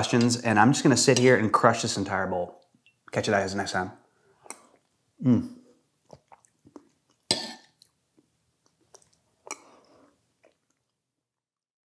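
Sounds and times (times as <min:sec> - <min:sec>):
slurping: 0:06.0 - 0:08.0.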